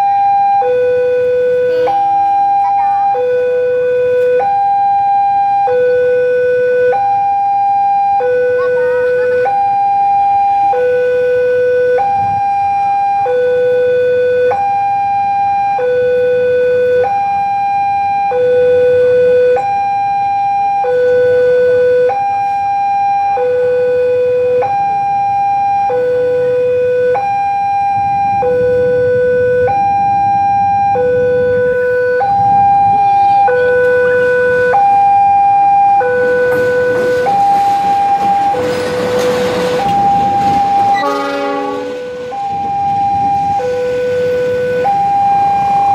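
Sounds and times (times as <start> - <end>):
two-tone crossing alarm: 0.0 - 45.9
locomotive noise: 23.2 - 45.9.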